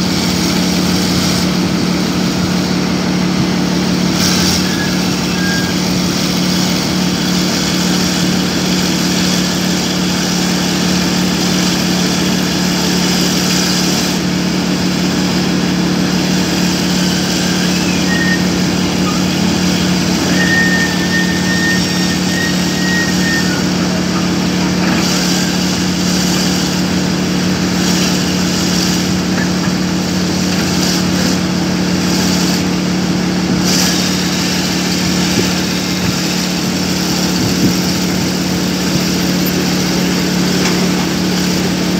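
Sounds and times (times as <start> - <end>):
diesel engine humming: 0.0 - 41.9.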